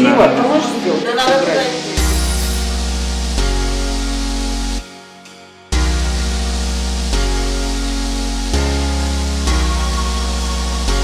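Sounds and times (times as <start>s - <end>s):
background music held chords: 0.0s - 11.0s
deep bass: 2.0s - 4.8s, 5.7s - 11.0s.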